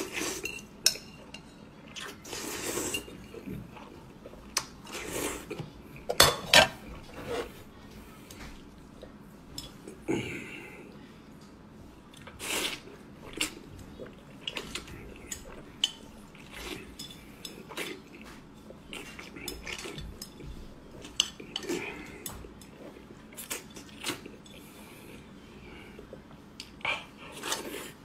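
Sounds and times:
chopsticks scraping a plate: 0:06.6 - 0:07.6.

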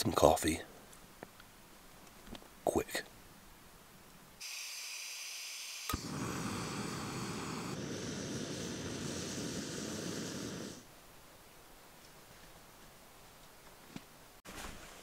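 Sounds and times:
camping stove burner hissing: 0:04.4 - 0:10.9.

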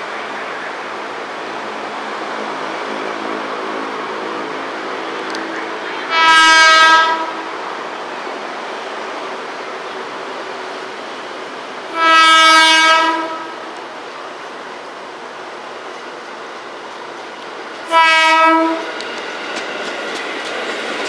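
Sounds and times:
train running on track: 0:00.0 - 0:21.0
train horn blasts: 0:05.9 - 0:07.4, 0:11.9 - 0:13.6, 0:17.9 - 0:18.9.

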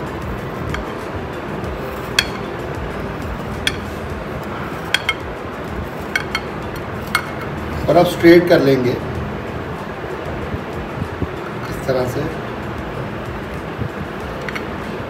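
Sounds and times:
background music: 0:00.0 - 0:15.0
knife clinking on glass dish: 0:06.0 - 0:07.5.

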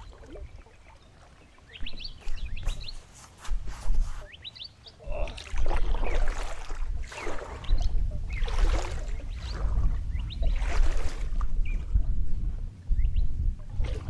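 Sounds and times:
kayak paddle splashing water: 0:00.0 - 0:02.9, 0:05.0 - 0:11.8
birds chirping: 0:00.0 - 0:13.5.

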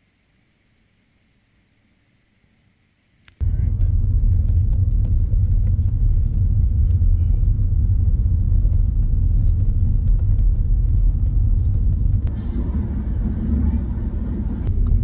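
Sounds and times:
car interior road rumble: 0:03.4 - 0:15.0.

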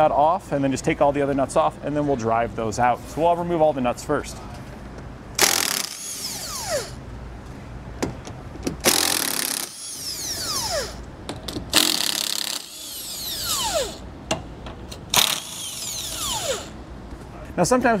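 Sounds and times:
impact wrench running: 0:05.4 - 0:07.0, 0:08.8 - 0:11.0, 0:11.6 - 0:14.0, 0:15.1 - 0:16.8.

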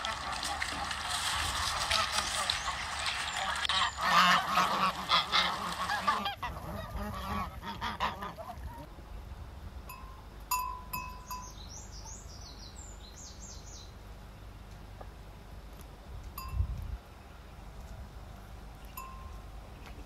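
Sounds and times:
geese honking: 0:00.0 - 0:08.9.

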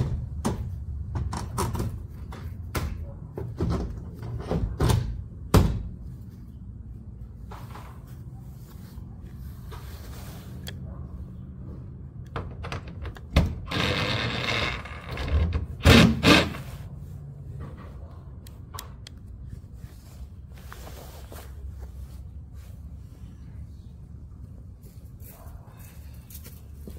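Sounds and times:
power tool running: 0:13.7 - 0:16.7.

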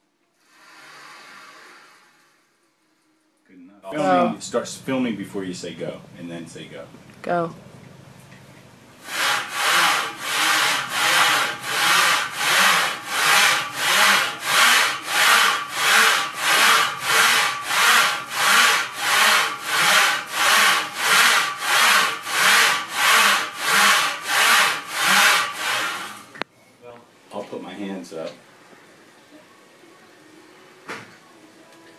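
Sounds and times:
rhythmic rubbing of exercise rig: 0:09.0 - 0:26.3.

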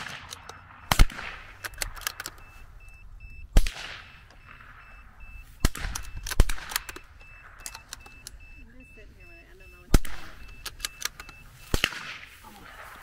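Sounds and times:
rifle shots: 0:00.0 - 0:02.5, 0:03.5 - 0:08.0, 0:09.8 - 0:13.0
faint electronic beeps: 0:00.3 - 0:13.0.

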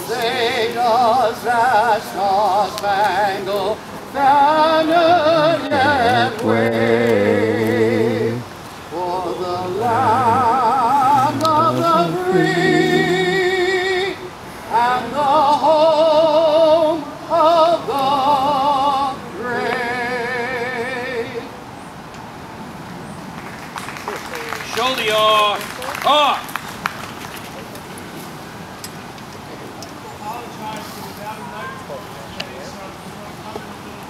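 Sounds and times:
person singing with vibrato: 0:00.0 - 0:21.6.

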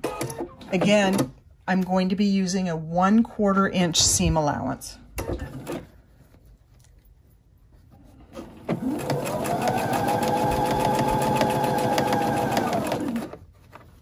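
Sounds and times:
sewing machine stitching: 0:08.3 - 0:13.5.

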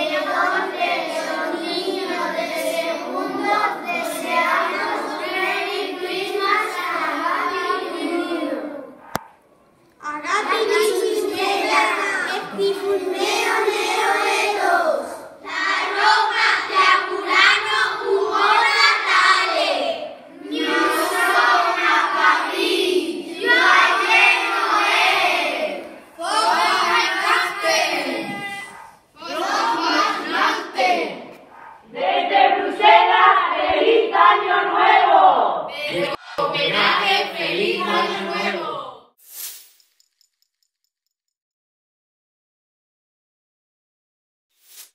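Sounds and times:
children speaking in unison: 0:00.0 - 0:09.1, 0:10.0 - 0:31.5, 0:32.6 - 0:39.0.

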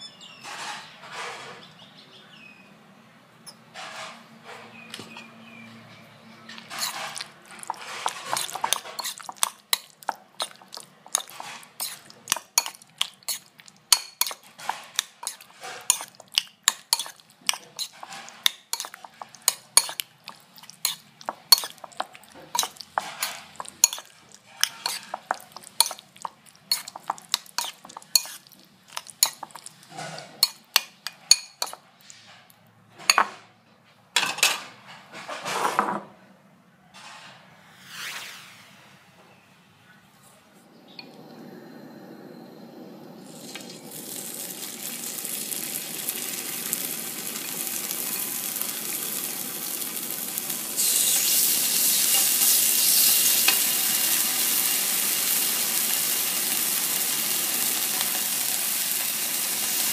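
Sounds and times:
metal spoon scraping a bowl: 0:06.5 - 0:32.3.

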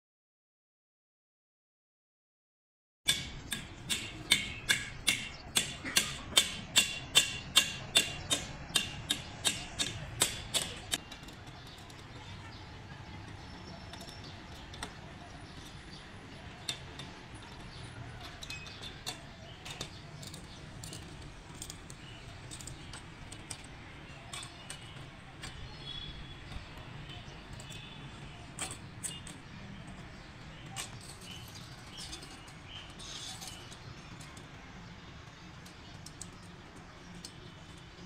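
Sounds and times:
hammer striking steel post: 0:03.1 - 0:11.0.

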